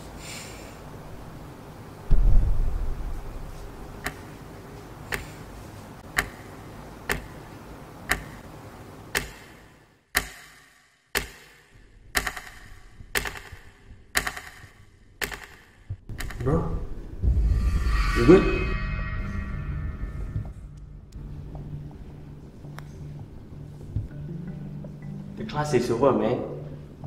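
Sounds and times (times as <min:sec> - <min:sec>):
background hum: 0:00.0 - 0:10.1, 0:11.7 - 0:27.0.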